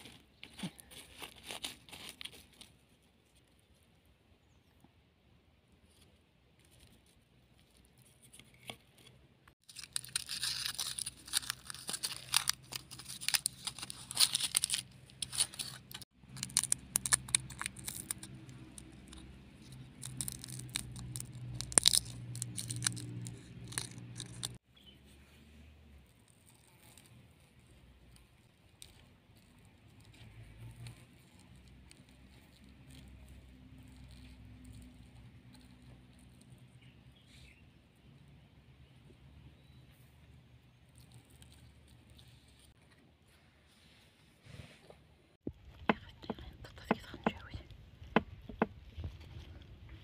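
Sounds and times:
garlic skin crackling as peeled: 9.6 - 24.6.

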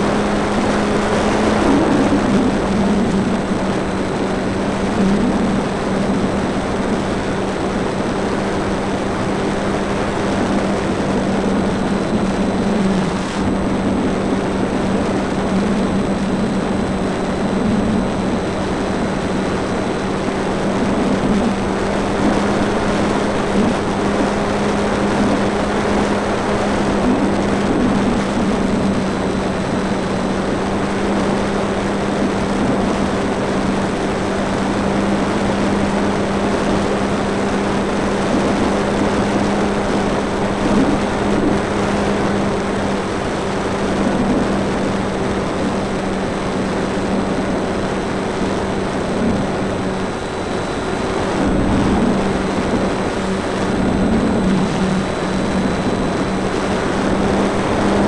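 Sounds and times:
electric motor and propeller hum: 0.0 - 58.0
wind rushing over camera: 0.0 - 58.0.

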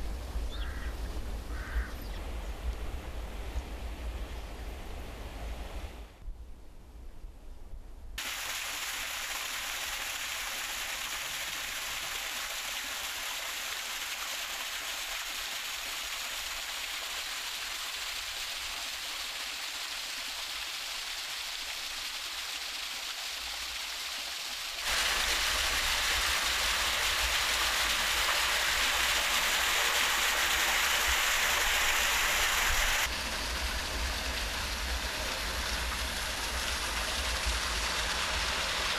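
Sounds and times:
running water rushing: 8.2 - 38.9.

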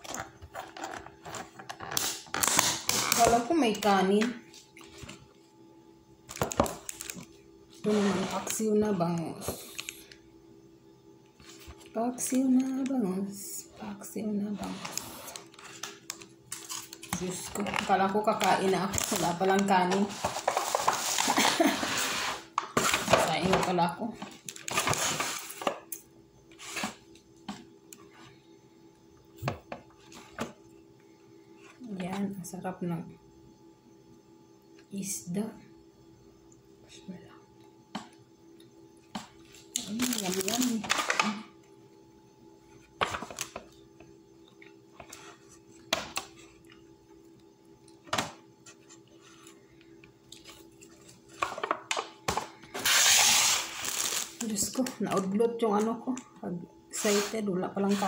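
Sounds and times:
faint steady hum: 0.0 - 58.0
foil crinkling and tapping: 6.3 - 7.3, 39.8 - 41.3
plastic bags rustling: 14.5 - 25.7, 39.7 - 41.4, 52.6 - 54.9.

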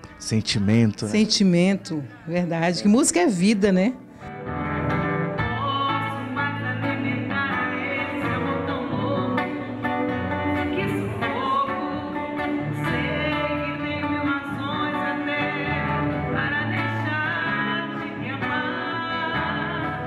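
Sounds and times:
acoustic guitar: 0.0 - 20.0
woman singing a bolero: 5.4 - 20.0.

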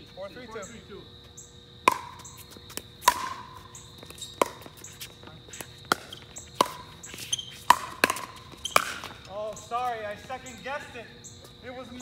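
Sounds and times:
paddles hitting plastic ball: 1.9 - 9.4.

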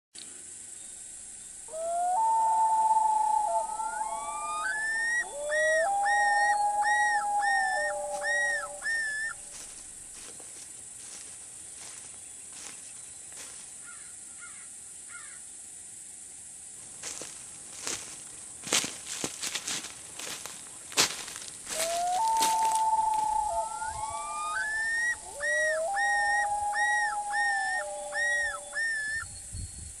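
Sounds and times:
loons calling across water: 1.7 - 10.3, 21.7 - 29.2.

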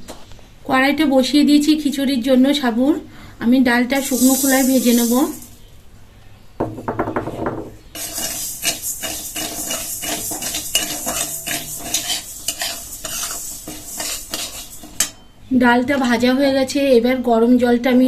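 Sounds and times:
lentils rattling in a pan: 4.0 - 5.6, 8.0 - 15.0
metal spatula scraping a pan: 7.9 - 15.3.

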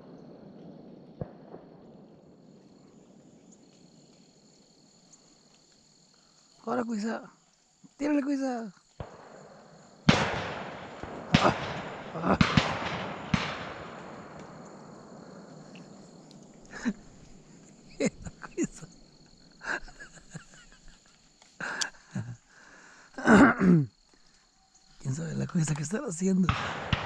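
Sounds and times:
shotgun shots echoing: 9.0 - 15.7, 26.4 - 27.0.

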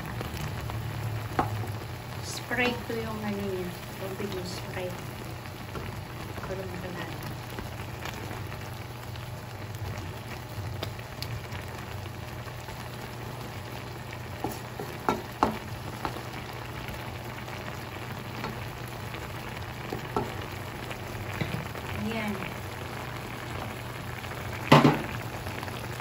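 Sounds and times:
shrimp sizzling in a wok: 0.0 - 26.0
wooden spatula knocking on pan: 14.4 - 16.2, 20.1 - 20.3, 24.7 - 25.1.

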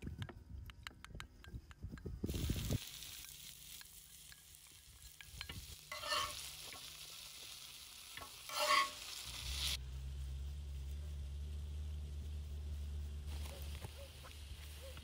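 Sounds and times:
food sizzling on griddle pan: 2.2 - 9.8
metal spoon scraping pan: 3.1 - 6.9, 8.2 - 9.2
low steady rumble: 9.3 - 14.8.

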